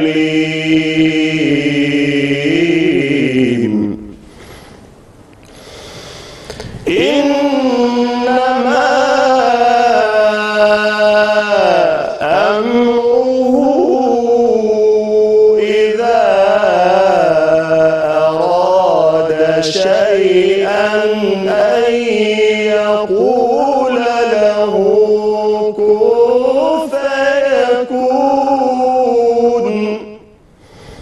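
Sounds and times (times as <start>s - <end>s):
man chanting melodically: 6.8s - 30.3s.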